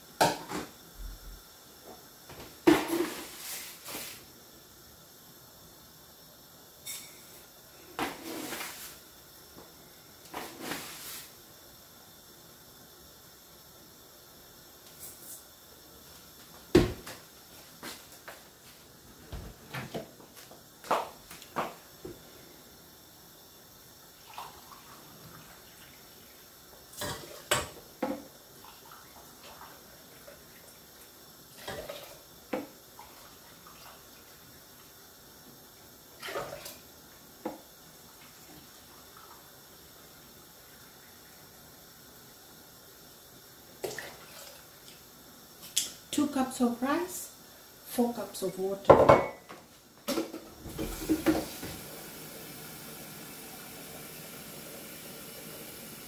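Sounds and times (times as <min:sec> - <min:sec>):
water pouring into saucepan: 0:24.1 - 0:27.6, 0:43.8 - 0:44.9, 0:50.6 - 0:56.0.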